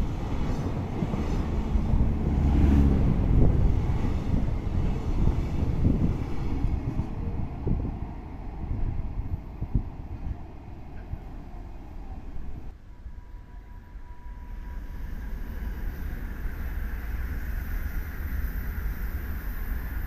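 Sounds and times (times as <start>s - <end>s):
wind on microphone: 0.0s - 11.4s
train wheels on rails: 14.5s - 20.0s.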